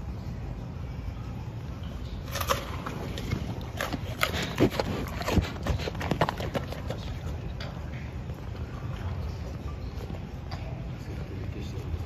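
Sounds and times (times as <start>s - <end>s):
steady low hum: 0.0s - 12.0s
bears crunching cabbage leaves: 2.2s - 7.7s.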